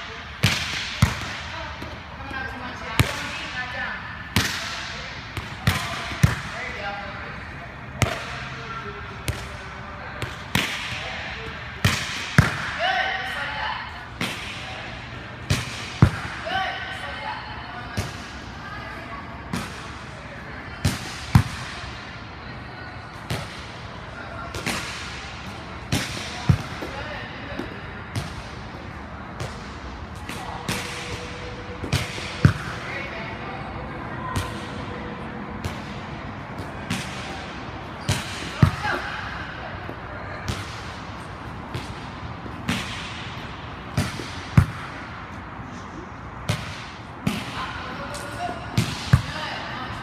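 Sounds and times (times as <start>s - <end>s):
volleyballs slapping and thudding: 0.0s - 6.8s, 7.9s - 13.0s, 14.1s - 16.6s, 20.7s - 22.1s, 23.2s - 33.2s, 34.2s - 45.7s, 46.3s - 49.9s
volleyballs struck hard: 0.4s - 1.5s, 10.2s - 11.1s, 11.8s - 12.8s, 41.7s - 45.2s.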